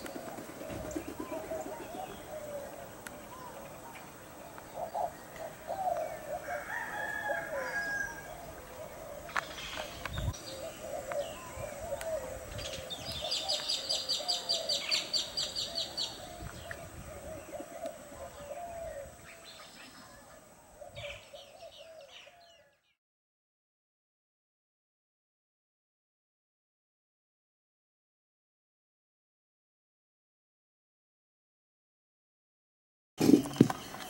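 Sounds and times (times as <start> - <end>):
rooster crowing: 6.2 - 8.4.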